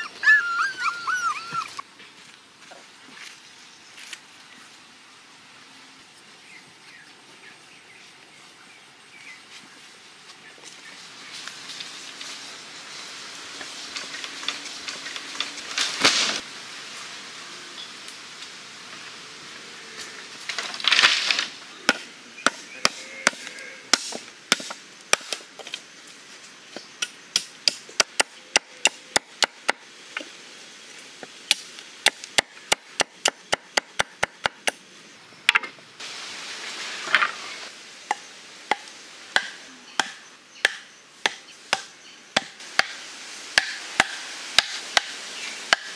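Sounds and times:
machete chopping wood: 0:21.9 - 0:25.4, 0:39.4 - 0:43.0, 0:43.6 - 0:45.1.

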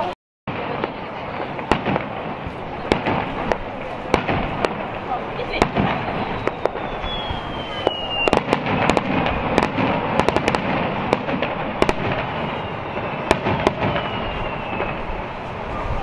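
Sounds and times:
fireworks bangs and crackles: 0:00.0 - 0:16.0
faint falling whistle: 0:06.2 - 0:09.0, 0:11.8 - 0:16.0.

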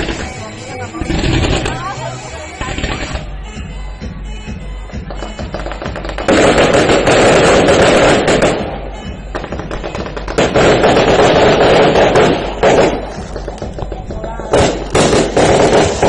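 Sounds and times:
fireworks crackling pops: 0:05.1 - 0:16.0.

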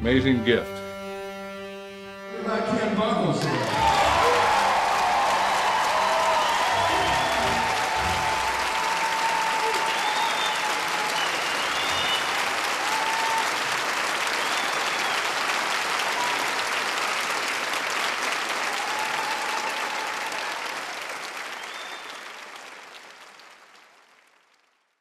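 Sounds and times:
large audience applauding: 0:03.4 - 0:25.0
whistles: 0:05.3 - 0:13.5, 0:14.2 - 0:15.4, 0:21.4 - 0:22.4.

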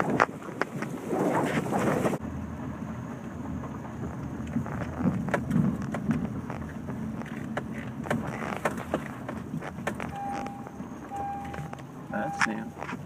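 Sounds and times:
vehicle rumble: 0:00.0 - 0:13.0
knocks and rattles from bumps: 0:03.4 - 0:11.8.

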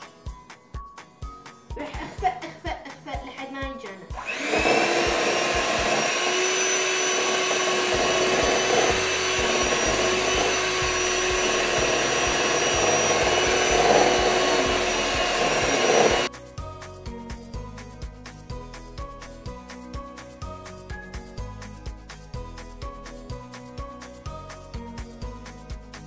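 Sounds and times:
background music: 0:00.0 - 0:26.0
electric hand mixer whine: 0:04.1 - 0:16.3.

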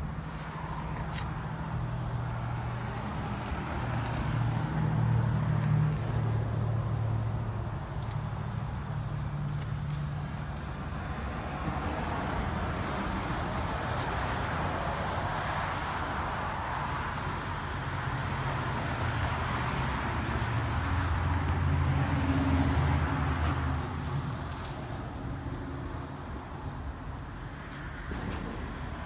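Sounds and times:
road traffic rushing: 0:00.0 - 0:29.0.

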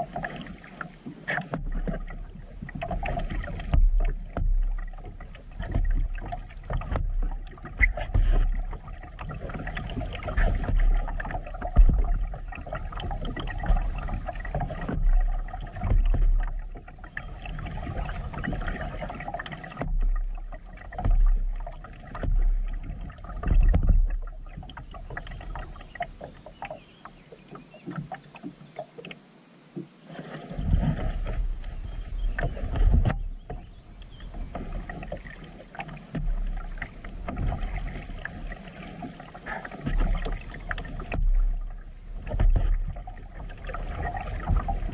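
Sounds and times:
paddle splashing water: 0:00.0 - 0:44.9.

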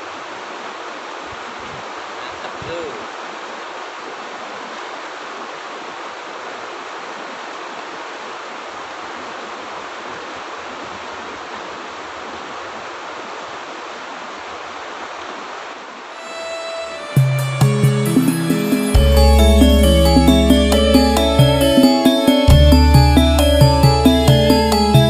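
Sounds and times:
river rushing over stones: 0:00.0 - 0:17.1
music: 0:16.2 - 0:25.0.

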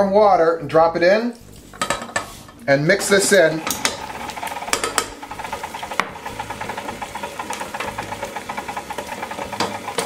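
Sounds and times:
stand mixer churning dough: 0:03.3 - 0:10.0.

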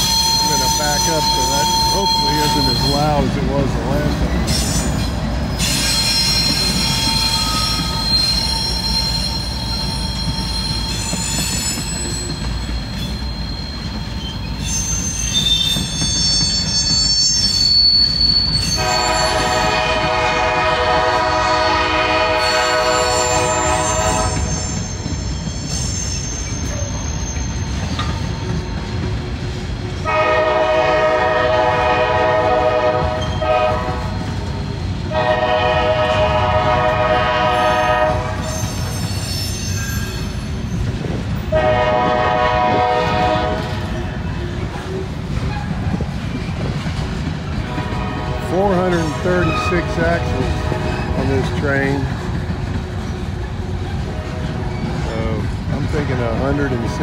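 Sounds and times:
train wheels squealing: 0:00.0 - 0:20.0, 0:21.2 - 0:29.6, 0:33.2 - 0:35.0, 0:37.5 - 0:41.6, 0:43.1 - 0:47.3, 0:48.6 - 0:57.0
rumble of rolling train cars: 0:00.0 - 0:57.0
locomotive horn: 0:18.7 - 0:24.8, 0:30.0 - 0:34.3, 0:35.1 - 0:38.6, 0:41.5 - 0:44.0, 0:47.6 - 0:51.7.

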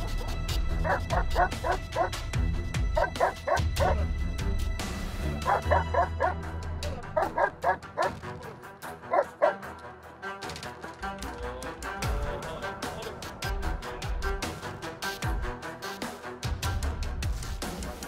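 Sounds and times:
dog barking in rapid volleys: 0:00.8 - 0:02.2, 0:02.9 - 0:04.0, 0:05.4 - 0:06.5, 0:07.2 - 0:09.7.

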